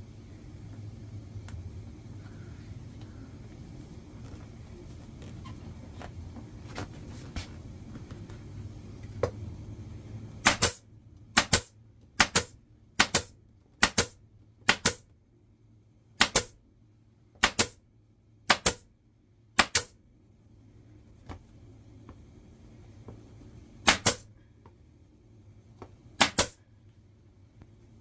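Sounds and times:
low hum: 0:00.0 - 0:28.0
pneumatic staple gun snapping: 0:10.4 - 0:10.8, 0:26.2 - 0:26.6.

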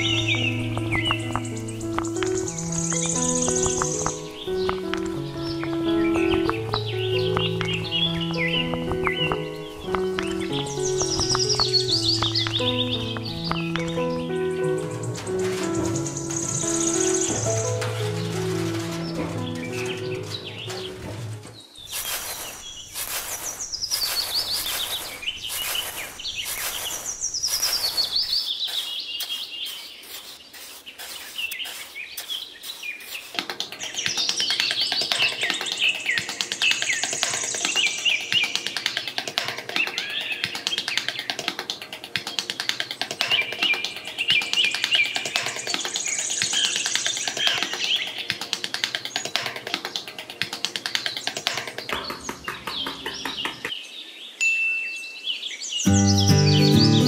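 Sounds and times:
short regular strokes: 0:00.0 - 0:32.4
birds chirping and singing: 0:00.0 - 0:57.0.

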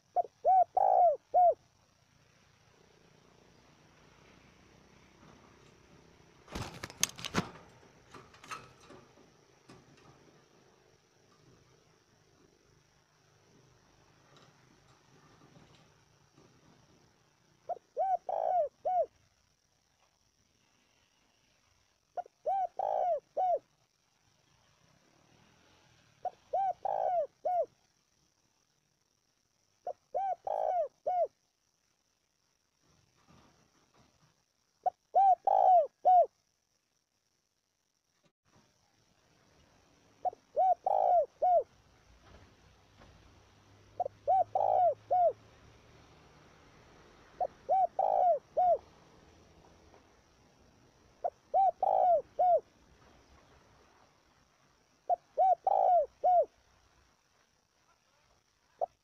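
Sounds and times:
dove cooing: 0:00.0 - 0:01.9, 0:17.6 - 0:19.2, 0:22.2 - 0:23.7, 0:26.2 - 0:27.8, 0:29.8 - 0:31.4, 0:34.8 - 0:36.4, 0:40.2 - 0:41.8, 0:43.8 - 0:45.4, 0:47.2 - 0:49.0, 0:51.2 - 0:52.7, 0:55.0 - 0:56.6.

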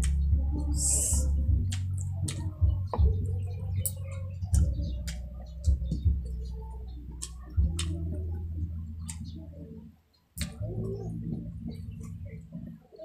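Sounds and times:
wet chewing and lip-smacking: 0:00.0 - 0:06.4
steady low hum: 0:00.0 - 0:12.9.

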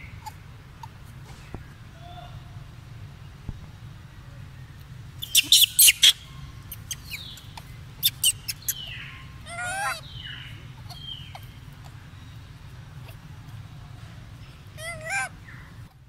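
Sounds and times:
steady low rumble: 0:00.0 - 0:16.0
young monkeys squealing: 0:05.2 - 0:07.4, 0:08.0 - 0:11.6, 0:14.8 - 0:15.6.

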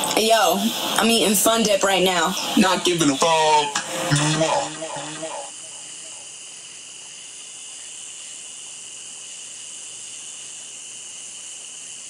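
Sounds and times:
night insects chirping: 0:00.0 - 0:03.7, 0:04.5 - 0:12.0.

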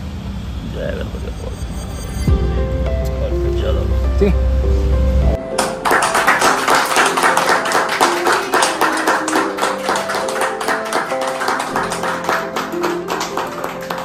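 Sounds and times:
background music: 0:01.4 - 0:14.0
group clapping: 0:05.5 - 0:14.0.

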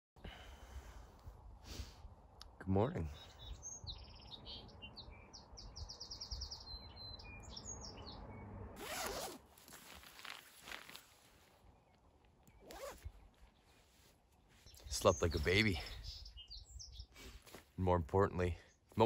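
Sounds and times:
small birds chirping: 0:02.2 - 0:19.0
zipper being pulled open: 0:08.8 - 0:11.1, 0:12.6 - 0:13.1.

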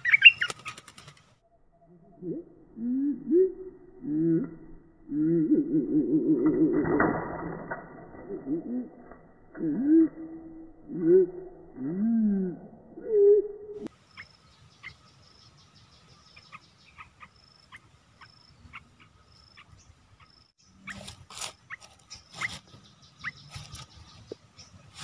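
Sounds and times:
bird chirping: 0:00.0 - 0:06.7, 0:09.5 - 0:25.0
bird wings flapping: 0:00.2 - 0:01.4.

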